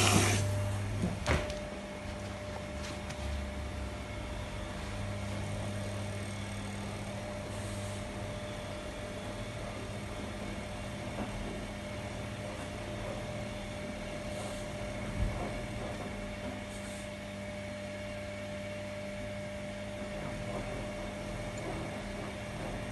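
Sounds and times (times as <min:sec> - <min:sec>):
motor hum: 0:00.0 - 0:22.9.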